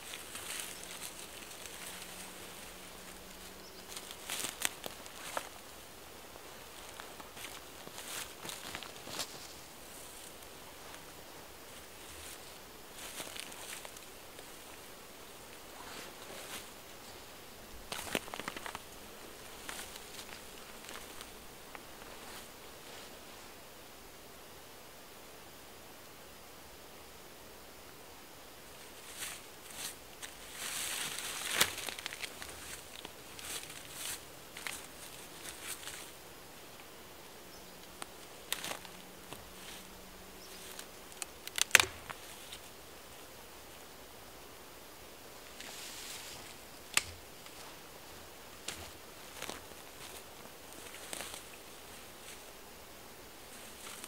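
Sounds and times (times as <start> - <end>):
dry crackles: 0.0 - 23.2, 28.7 - 37.0, 37.7 - 42.8, 45.4 - 54.0
moss and debris rustling: 0.0 - 23.6, 28.7 - 43.9, 45.2 - 54.0
insect buzzing: 0.0 - 25.8.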